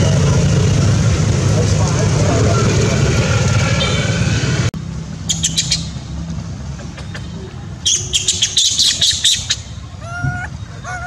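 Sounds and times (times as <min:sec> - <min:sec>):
road traffic rumble: 0:00.0 - 0:11.0
high chirps: 0:05.2 - 0:06.1, 0:07.0 - 0:11.0.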